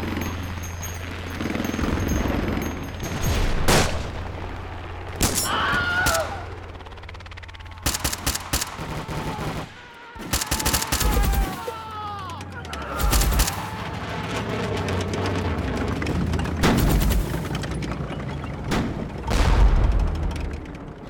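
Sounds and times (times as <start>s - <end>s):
gunfire volleys: 3.0s - 4.3s, 7.8s - 11.6s
low rumble: 13.3s - 21.0s.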